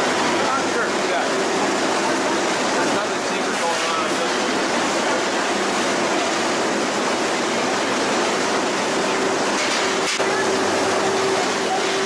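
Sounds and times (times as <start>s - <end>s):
processing machinery running: 0.0s - 12.0s.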